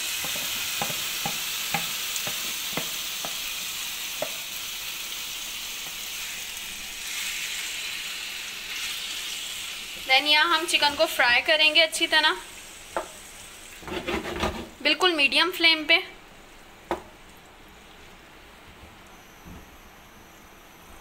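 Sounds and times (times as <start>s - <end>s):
chicken sizzling in oil: 0.0s - 14.0s
spatula knocking against pan: 0.2s - 3.4s.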